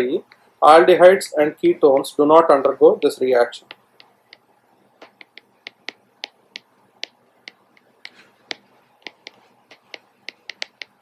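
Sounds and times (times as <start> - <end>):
stylus tapping on tablet: 3.6 - 11.0.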